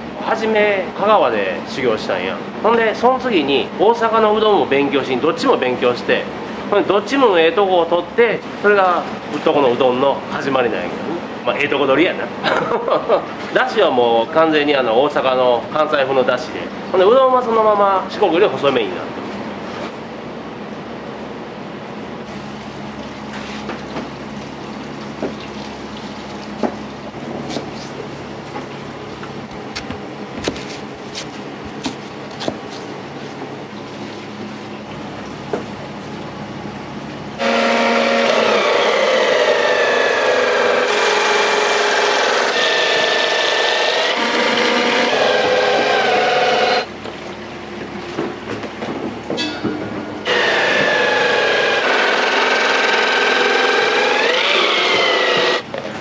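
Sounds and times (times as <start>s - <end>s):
machine squealing whine: 37.4s - 46.9s, 50.2s - 55.7s.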